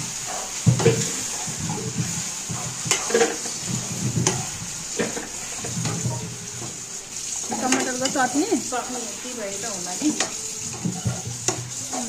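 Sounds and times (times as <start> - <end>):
food sizzling in a pan: 0.0 - 12.0
utensil clinking against pan: 7.4 - 9.1, 10.0 - 12.0.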